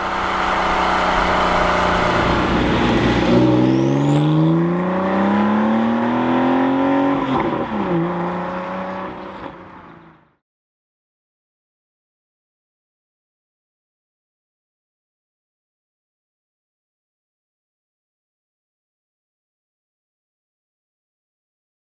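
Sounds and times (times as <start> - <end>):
car engine revving: 0.0 - 10.4.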